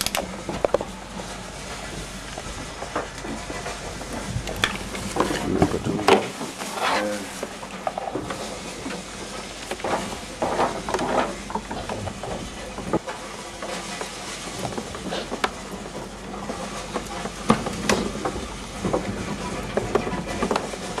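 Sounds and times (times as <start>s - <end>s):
plastic rustling: 0.6s - 15.4s.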